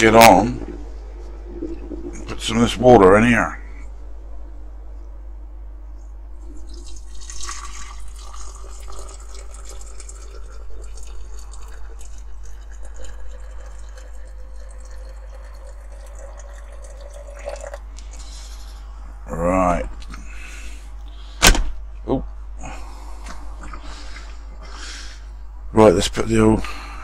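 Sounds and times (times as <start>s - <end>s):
water poured into glass jar: 6.5s - 17.8s.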